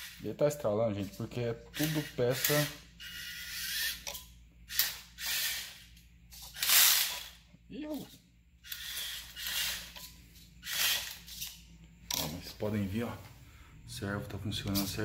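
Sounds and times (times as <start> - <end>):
rc truck electric motors whirring: 0.0 - 0.2, 1.7 - 7.4, 8.6 - 11.6.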